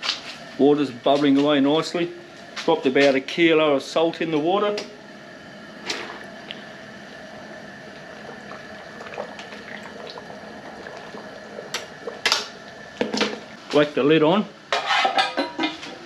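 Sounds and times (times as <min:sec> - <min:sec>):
water boiling and bubbling: 0:04.9 - 0:13.6.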